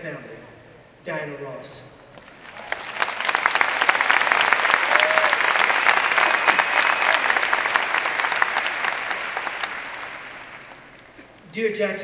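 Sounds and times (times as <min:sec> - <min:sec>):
audience applauding: 0:02.2 - 0:11.1.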